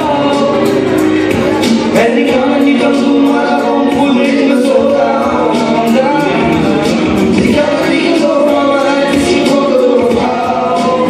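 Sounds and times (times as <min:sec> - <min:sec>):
loud amplified live music: 0:00.0 - 0:11.0
people singing into microphones: 0:00.0 - 0:11.0.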